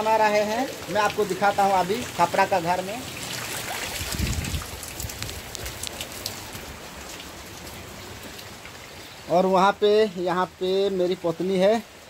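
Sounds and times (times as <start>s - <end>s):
drops splashing in puddles: 0.0s - 9.3s
heavy rain falling: 0.0s - 12.0s.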